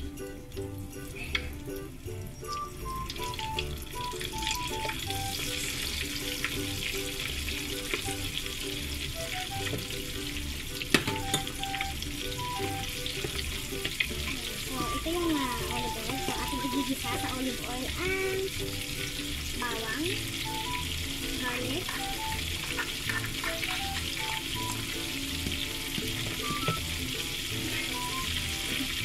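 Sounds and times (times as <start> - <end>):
light background music: 0.0 - 29.0
shrimp sizzling in hot oil: 1.1 - 29.0.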